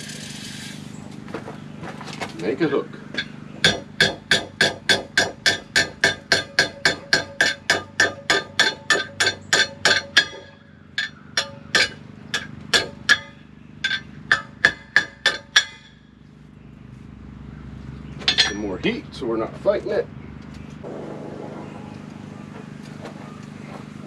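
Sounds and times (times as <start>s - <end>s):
hammer striking steel on anvil: 3.2s - 16.1s, 18.3s - 18.7s.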